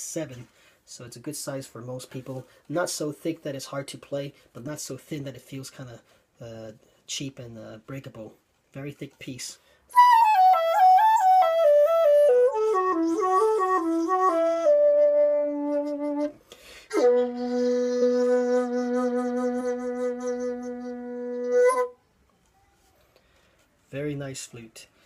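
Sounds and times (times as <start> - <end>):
bamboo flute playing: 9.9 - 22.0.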